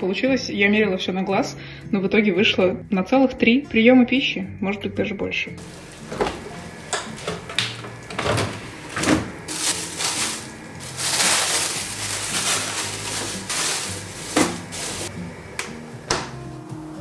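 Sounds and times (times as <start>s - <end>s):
plastic bags rustling: 5.6s - 15.1s
plastic freezer drawers knocking: 6.0s - 10.4s, 12.4s - 15.0s.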